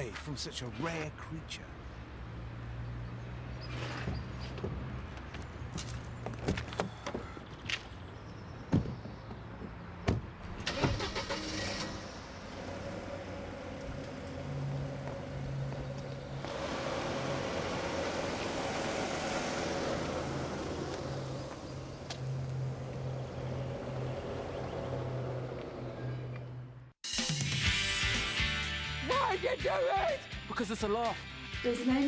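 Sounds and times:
car engine starting and running: 0:09.4 - 0:27.0.

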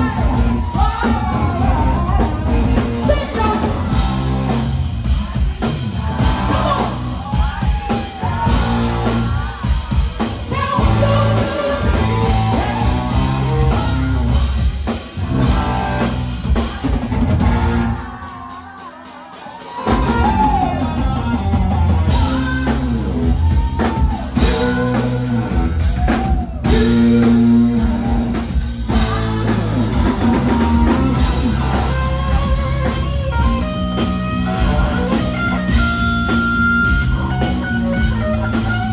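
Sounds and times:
woman singing lead vocals: 0:00.0 - 0:04.0, 0:05.6 - 0:14.7, 0:22.1 - 0:35.3
electric bass: 0:00.0 - 0:18.0, 0:19.9 - 0:38.9
electric guitar: 0:00.0 - 0:18.2, 0:19.8 - 0:38.9
drum kit: 0:00.0 - 0:38.9.

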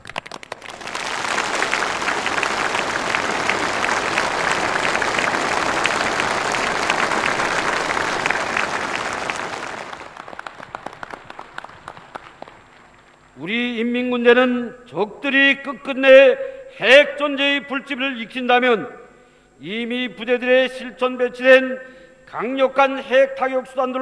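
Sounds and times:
crowd applause: 0:00.0 - 0:13.2.

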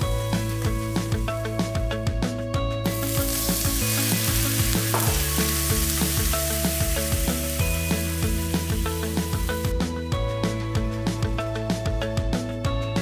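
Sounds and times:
liquid sizzling in a hot wok: 0:00.0 - 0:01.4, 0:02.9 - 0:09.7
background music with steady beat: 0:00.0 - 0:13.0.

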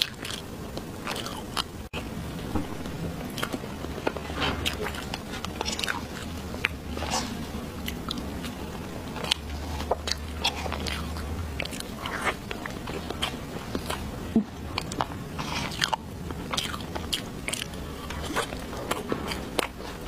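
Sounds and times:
wet mouth clicks chewing: 0:04.6 - 0:14.1, 0:14.7 - 0:20.0.

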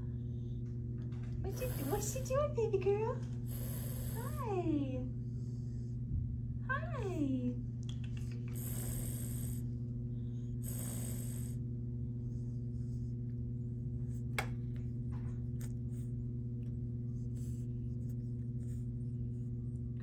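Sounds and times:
steady low hum: 0:00.0 - 0:20.0
cat hissing: 0:01.5 - 0:02.2, 0:03.5 - 0:04.4, 0:08.0 - 0:09.6, 0:10.6 - 0:11.6.

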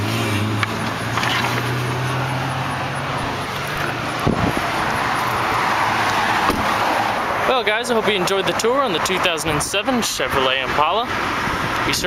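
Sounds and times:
car interior hum and rush: 0:00.0 - 0:12.0.

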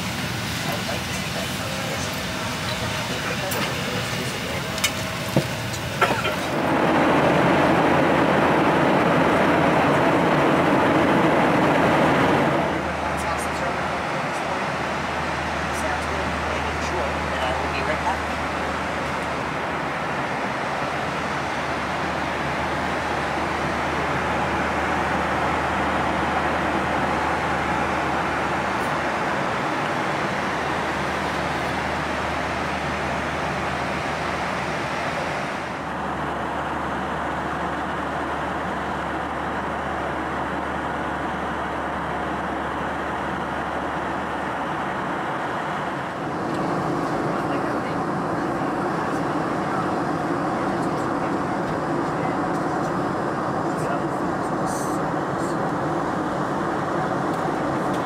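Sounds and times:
airliner cabin noise: 0:00.0 - 0:58.0.

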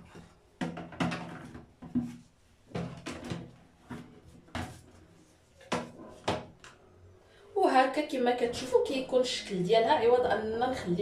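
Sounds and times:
plastic bottles knocking into baskets: 0:00.6 - 0:04.8.

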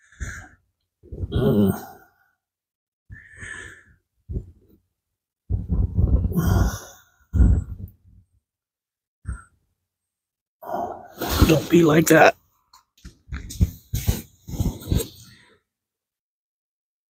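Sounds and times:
man sighing and breathing heavily: 0:00.0 - 0:02.4, 0:06.1 - 0:07.8.

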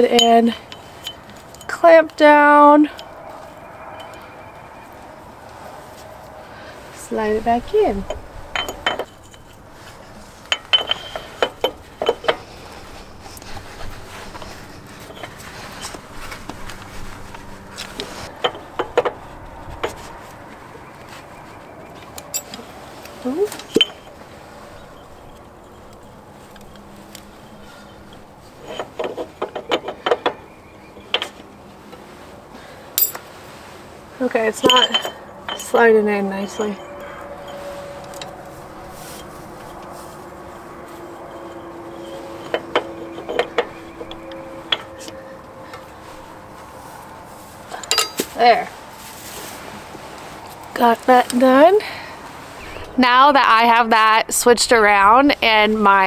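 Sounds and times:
low hum: 0:00.0 - 0:29.2, 0:34.4 - 0:56.0
metal shaft clicking and knocking: 0:10.4 - 0:12.5, 0:41.2 - 0:45.9.

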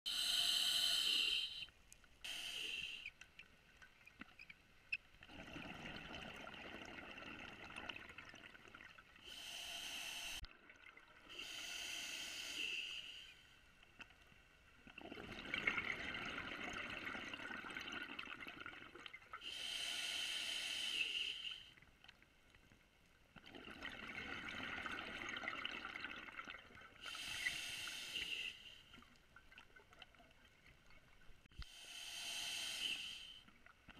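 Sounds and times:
hissing regulator inhalations: 0:00.1 - 0:03.2, 0:09.2 - 0:10.4, 0:11.3 - 0:13.5, 0:19.4 - 0:21.8, 0:27.0 - 0:29.0, 0:31.6 - 0:33.6.

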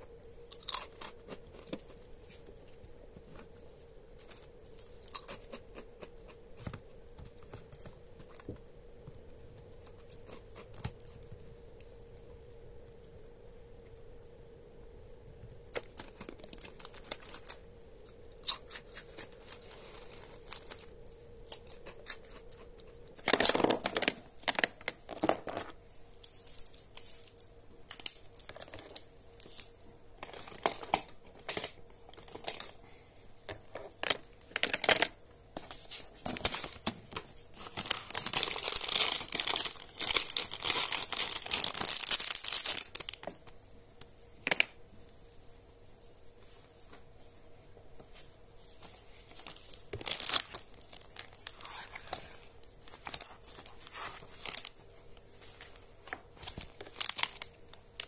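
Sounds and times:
foil snack bag crinkling: 0:15.7 - 0:33.0, 0:33.6 - 0:43.4, 0:49.3 - 0:54.9, 0:55.6 - 0:58.0.

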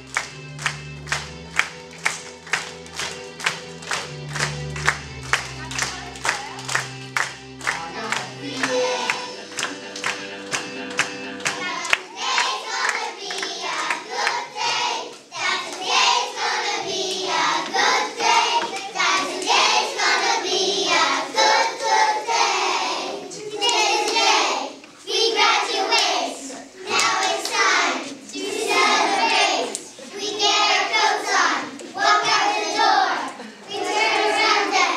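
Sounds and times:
backing track music: 0:00.0 - 0:12.2
clapping in time: 0:00.0 - 0:14.4
children singing: 0:07.7 - 0:34.9.

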